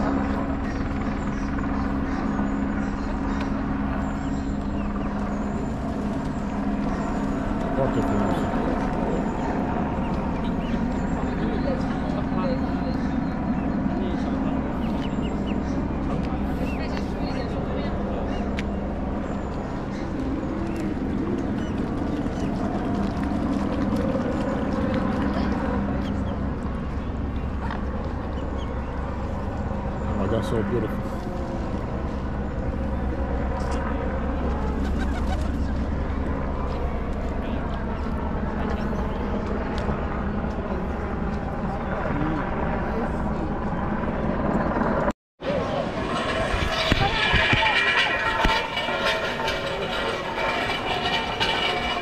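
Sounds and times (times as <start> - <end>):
engine drone: 0.0 - 52.0
outdoor background noise: 0.0 - 52.0
indistinct voices: 45.4 - 52.0.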